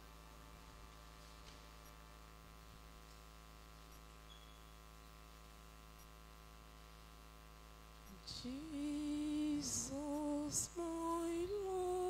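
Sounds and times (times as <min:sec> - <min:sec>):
faint electrical hum: 0:00.0 - 0:12.0
faint ticks: 0:06.0 - 0:06.2.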